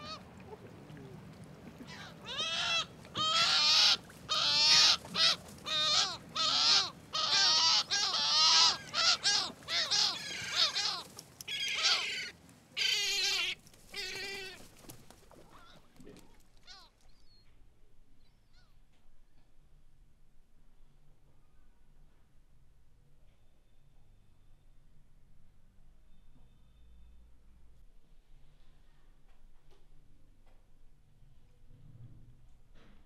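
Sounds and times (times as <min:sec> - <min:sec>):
seagulls squawking: 0:01.8 - 0:14.6.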